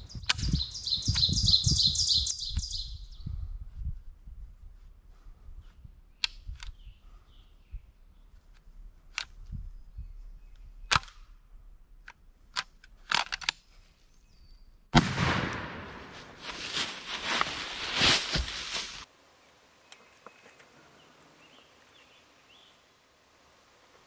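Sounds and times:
sharp snaps and clicks: 6.2s - 6.8s, 10.5s - 11.3s
shotgun blast: 15.0s - 16.4s.

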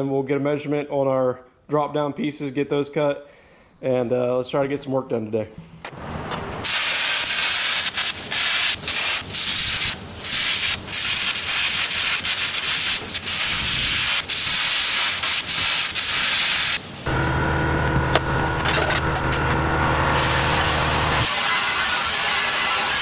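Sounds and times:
plasma cutter hissing: 6.6s - 17.1s, 20.1s - 23.0s.

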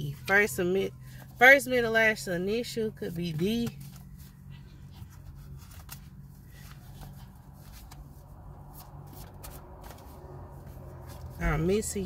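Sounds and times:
low steady hum: 0.0s - 12.0s
cards being shuffled: 3.6s - 11.5s.

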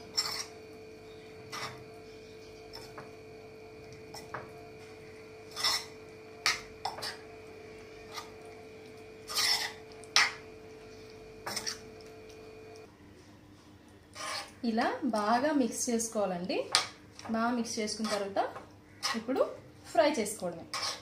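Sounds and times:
metal spoon scraping a bowl: 0.0s - 0.6s, 1.5s - 1.8s, 5.5s - 7.3s, 9.2s - 10.4s, 11.4s - 11.9s, 14.2s - 14.6s, 20.7s - 21.0s
faint steady hum: 0.0s - 20.8s.

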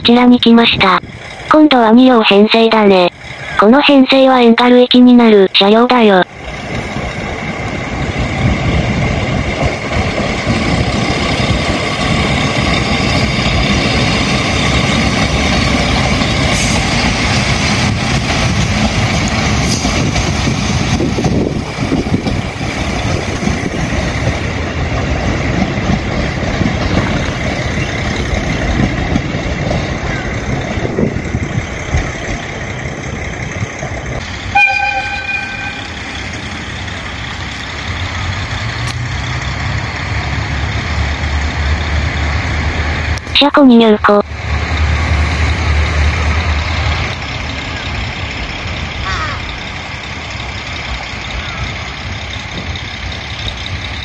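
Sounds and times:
diesel train passing slowly: 0.0s - 54.0s
train horn toot: 34.5s - 36.0s.

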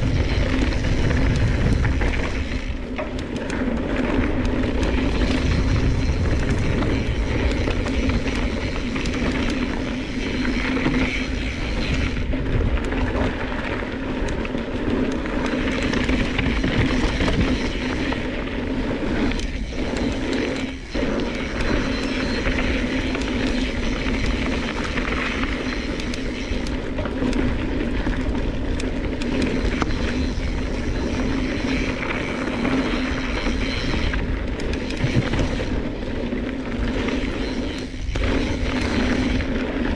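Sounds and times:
wind on microphone: 0.0s - 2.8s, 4.3s - 13.6s
bike rattling: 0.0s - 39.9s.

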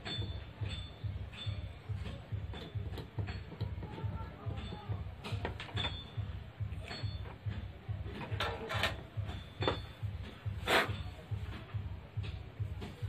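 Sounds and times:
tools handled on wooden workbench: 8.1s - 10.9s.

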